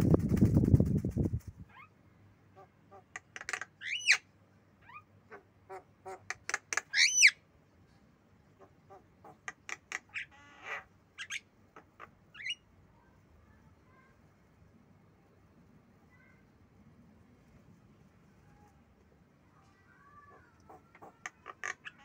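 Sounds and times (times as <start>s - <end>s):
bird buzzy rattle: 0.0s - 1.6s
bird squawking and whistling: 6.9s - 7.4s.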